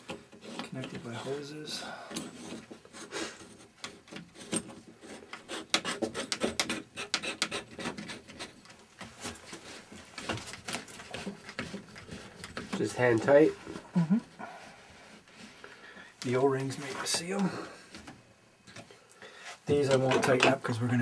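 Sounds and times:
fittings rubbing and scraping: 0.0s - 13.8s.

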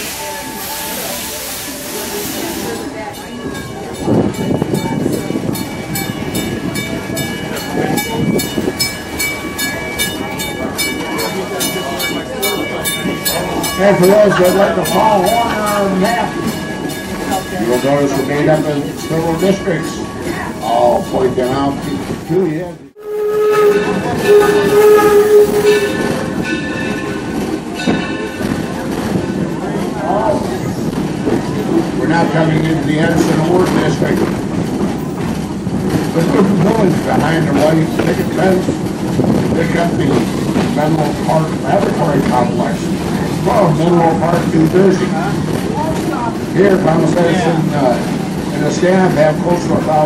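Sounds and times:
steam locomotive whistle blast: 0.0s - 2.7s, 23.0s - 26.4s
steam locomotive chuffing: 0.0s - 50.0s
train cars rolling on track: 0.0s - 50.0s.

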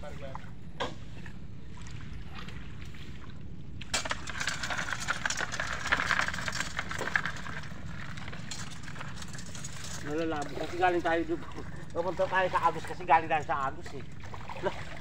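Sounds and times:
crabs clicking and scraping: 3.8s - 15.0s.

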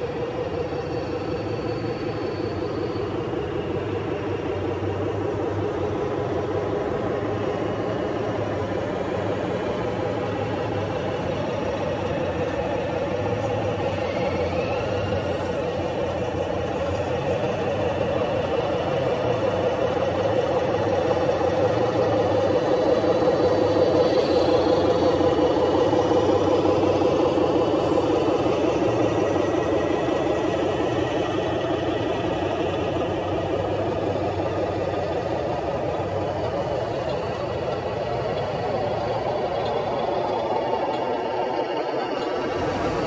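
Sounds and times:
remote-control model motors droning: 12.1s - 32.2s.

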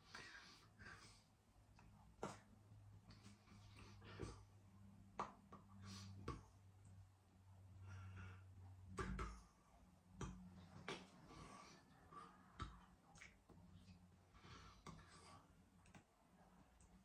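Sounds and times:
breaths: 0.0s - 1.4s, 7.8s - 8.6s, 14.2s - 15.6s
faint low hum: 0.0s - 17.0s.

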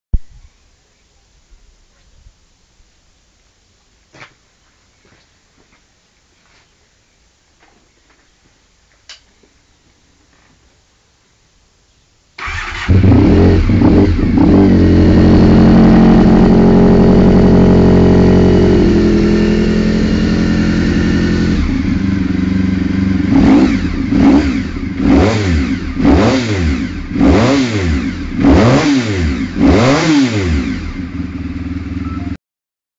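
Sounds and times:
engine revving in throttle blips: 12.4s - 32.3s
motorcycle engine running: 12.5s - 32.4s.

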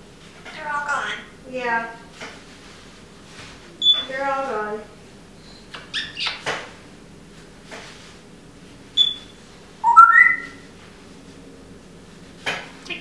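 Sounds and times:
parrot whistling: 5.8s - 6.4s, 9.0s - 10.6s.

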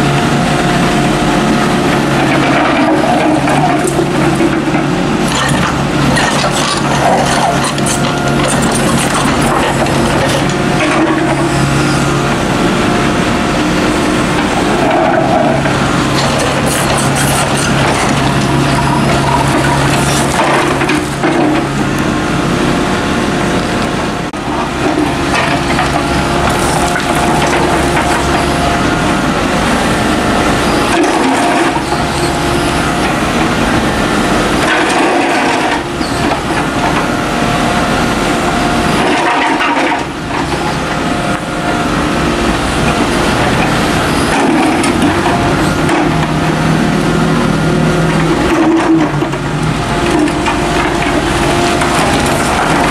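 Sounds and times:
excavator diesel engine running: 0.0s - 52.9s
bucket scraping through rubble: 5.2s - 11.2s, 14.6s - 21.3s.

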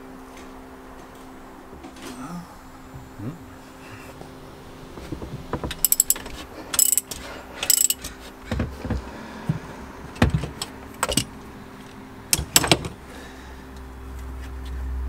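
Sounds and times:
metal parts and tools clinking: 5.7s - 8.2s, 10.4s - 11.3s.

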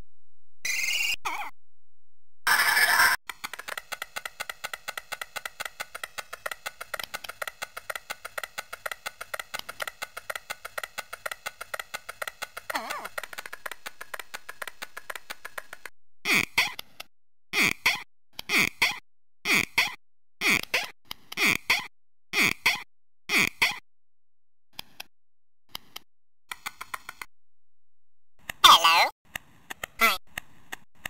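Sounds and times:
fast cartoon ticking loop: 3.3s - 15.8s.

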